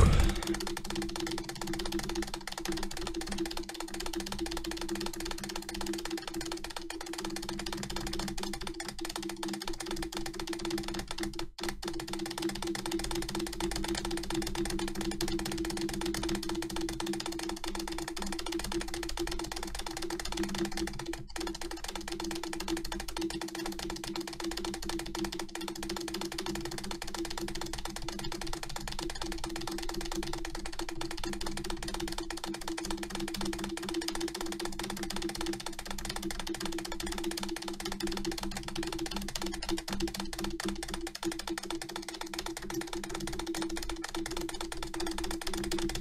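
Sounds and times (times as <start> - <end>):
keyboard spacebar clicks: 0.0 - 0.6.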